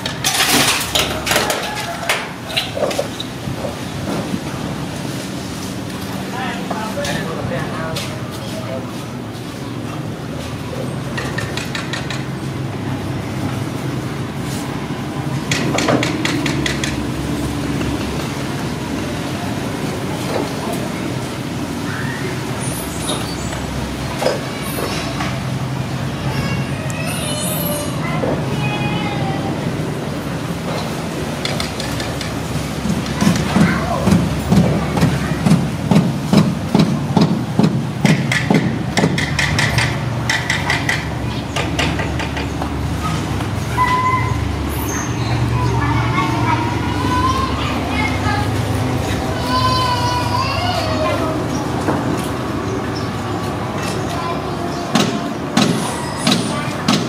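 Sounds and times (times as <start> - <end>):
hammering knocks: 33.0 - 42.7, 54.9 - 57.0.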